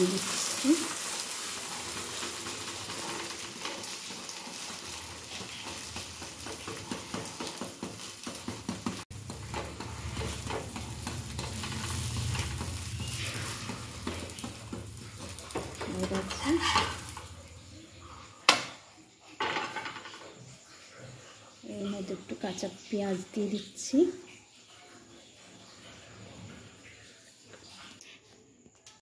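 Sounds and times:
egg sizzling in frying pan: 0.0 - 25.9
metal spatula scraping pan: 0.4 - 17.6.

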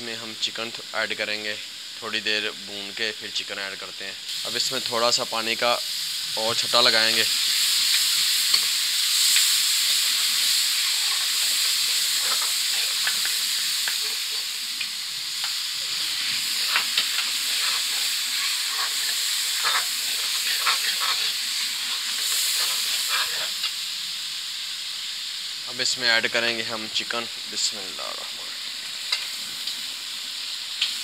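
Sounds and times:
sauce sizzling in a metal pan: 0.0 - 31.0
metal spoon scraping a pan: 10.2 - 14.5, 15.5 - 23.8.

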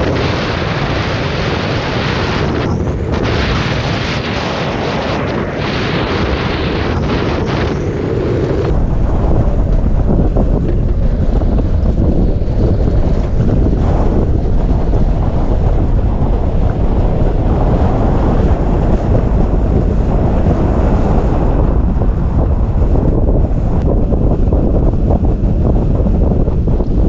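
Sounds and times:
wind buffeting microphone: 0.0 - 27.0
wheels rolling on asphalt: 8.1 - 27.0.

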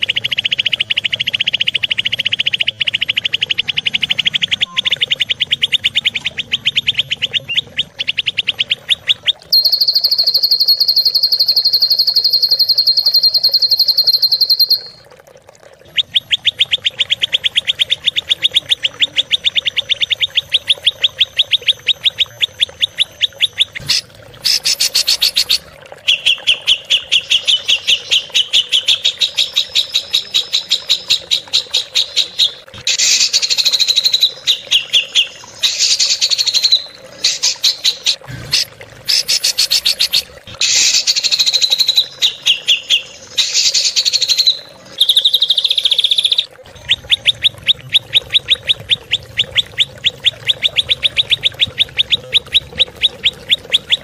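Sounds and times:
bird fast trill: 9.5 - 15.0, 21.0 - 28.3
songbird rapid harsh chips: 23.8 - 25.6, 35.7 - 41.9.

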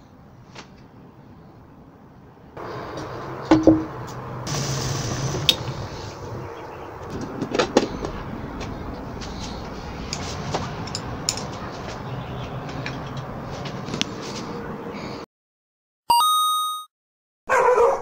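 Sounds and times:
steady cooking hiss: 2.6 - 7.2.

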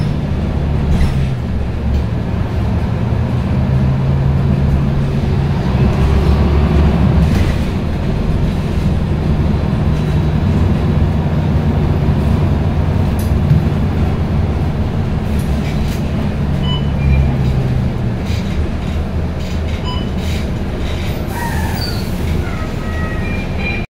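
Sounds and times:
bus diesel engine droning: 0.0 - 23.9
short squeals: 21.0 - 23.9.

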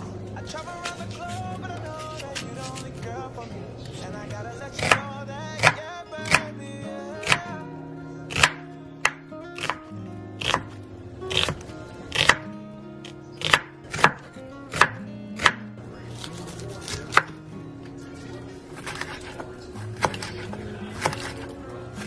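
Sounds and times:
quiet background music: 0.0 - 22.0
knife chopping on wooden board: 4.8 - 6.5, 7.2 - 7.5, 8.3 - 15.6, 16.2 - 17.4, 18.8 - 21.5.

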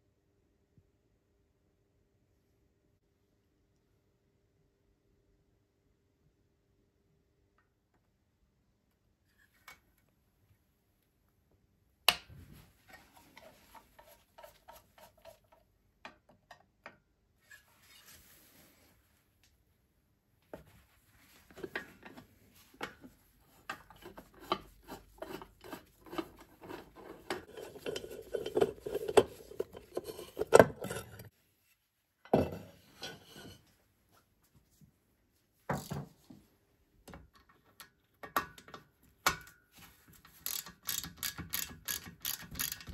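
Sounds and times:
screwdriver clinking on metal screws: 40.3 - 42.9.

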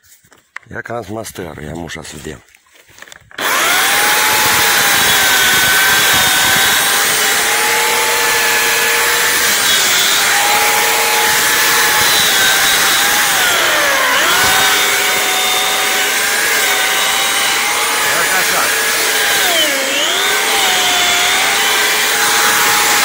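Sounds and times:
chainsaw cutting wood: 3.3 - 23.0.

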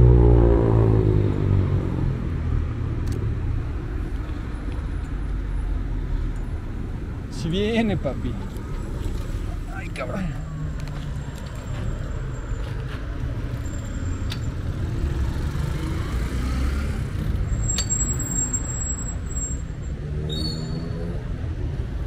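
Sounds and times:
bus and car engines running: 0.0 - 22.0
brief high squeal: 20.3 - 21.0.

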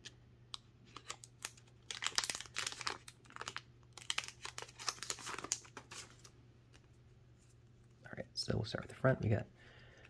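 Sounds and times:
plastic wrapper crinkling: 0.9 - 6.9.

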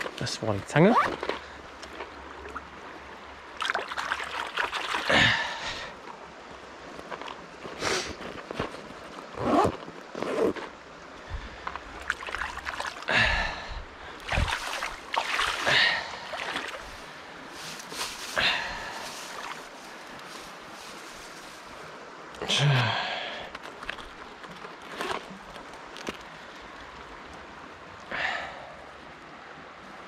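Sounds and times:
splashing in shallow water: 0.8 - 6.2, 11.7 - 22.0.

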